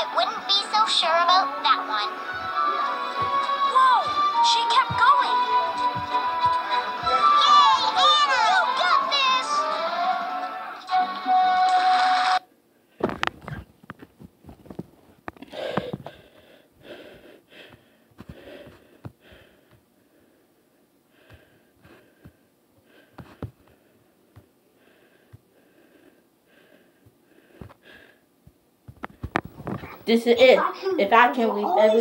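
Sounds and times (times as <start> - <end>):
music with singing: 0.0 - 12.4
handling knocks and bumps: 13.0 - 16.2
person breathing heavily: 15.4 - 28.3.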